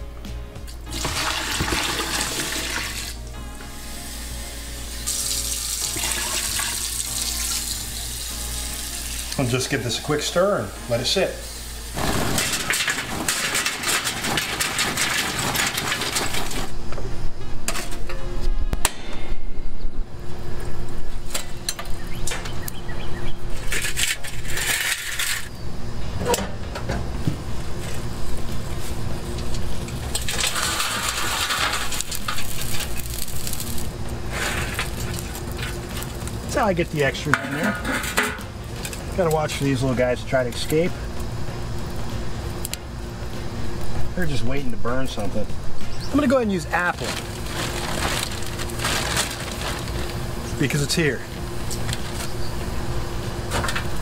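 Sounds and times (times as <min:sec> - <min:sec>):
charcoal rattling in metal starter: 0:00.9 - 0:03.2, 0:05.1 - 0:07.6, 0:09.1 - 0:16.8, 0:23.6 - 0:25.5, 0:29.3 - 0:41.0, 0:46.0 - 0:52.2
liquid pouring and splashing: 0:00.9 - 0:03.2, 0:05.1 - 0:07.6.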